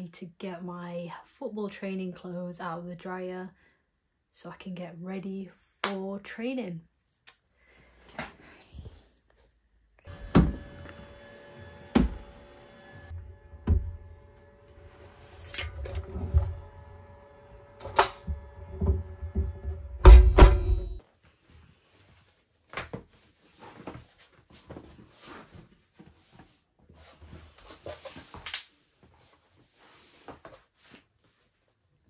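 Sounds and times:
tumble dryer hum: 10.1s - 21.0s
clothes rustling: 21.1s - 32.0s.

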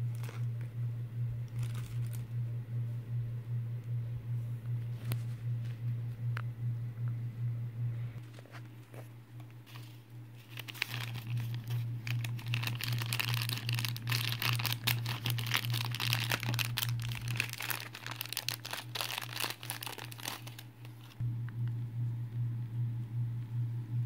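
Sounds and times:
plastic bag crinkling: 0.0s - 0.5s, 1.5s - 2.3s, 8.9s - 21.2s
steady low hum: 0.0s - 24.0s.

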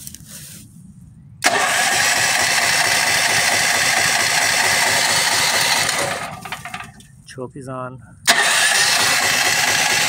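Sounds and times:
generator engine cranking: 1.4s - 7.2s, 8.2s - 10.0s.

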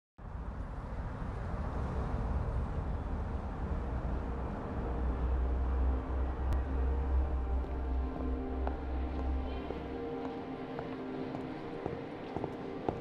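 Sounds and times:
wash of noise: 0.4s - 5.5s.

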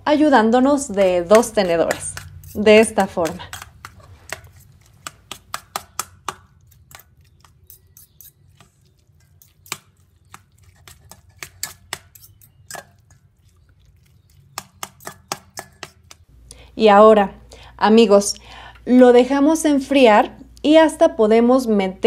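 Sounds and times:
metal forks scraping steel bowl: 0.5s - 16.2s.

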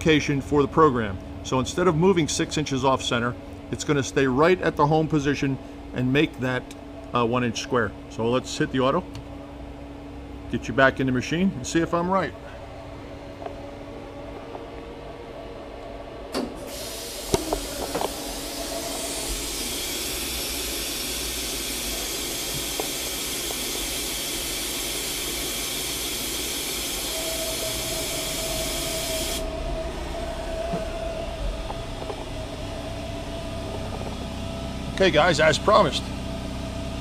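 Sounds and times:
machine hum: 0.0s - 37.0s
steady whine: 0.0s - 37.0s
loud steady hiss: 16.6s - 30.1s.

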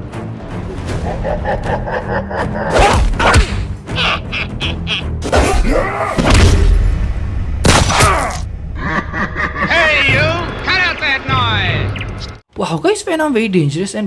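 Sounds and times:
background music: 0.0s - 12.4s.

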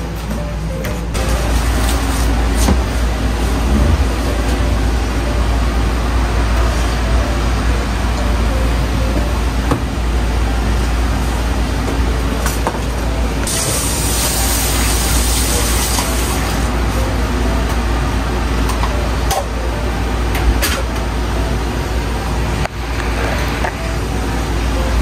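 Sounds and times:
kitchen low rumble: 0.0s - 25.0s
seasoning pouring hiss: 13.5s - 16.6s.

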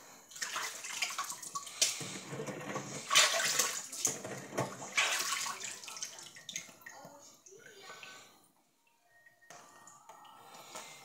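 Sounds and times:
water splashing in a metal sink: 0.3s - 8.3s.

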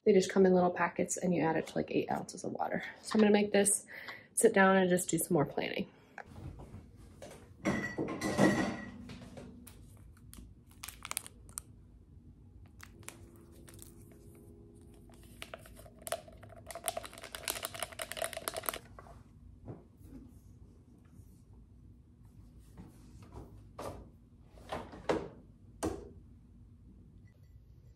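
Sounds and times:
packet crinkling and tearing: 9.8s - 11.7s, 12.7s - 18.9s.

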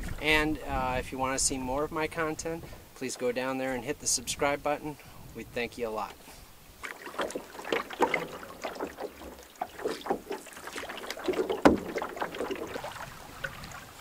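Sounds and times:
paddle splashing water: 0.0s - 5.1s, 5.9s - 14.0s
paddle knocking: 2.1s - 4.4s, 6.8s - 14.0s.

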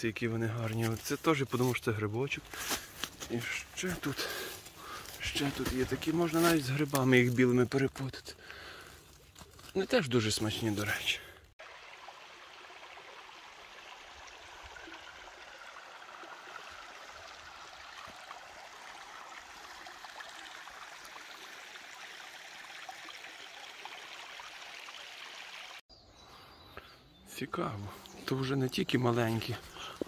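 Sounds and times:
stream running over stones: 0.1s - 25.8s.

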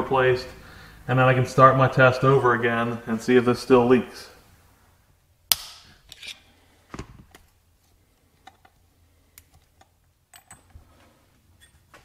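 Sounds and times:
tools and small parts clicking: 9.4s - 10.8s.

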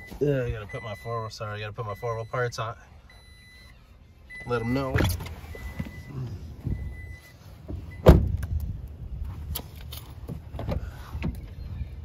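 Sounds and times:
truck door slamming: 7.7s - 8.5s.

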